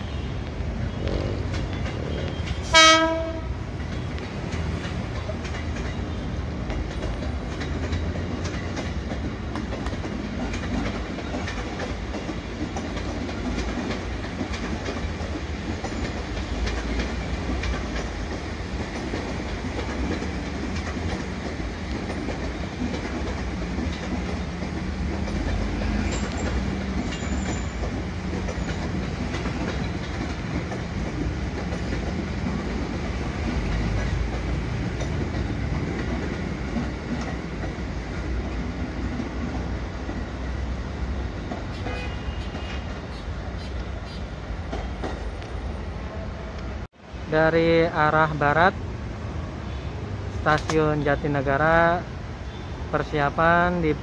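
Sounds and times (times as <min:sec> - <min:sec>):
train rumble: 0:00.0 - 0:54.0
wheels clacking over track: 0:01.2 - 0:40.6
train horn blast: 0:02.6 - 0:03.6, 0:41.7 - 0:42.9.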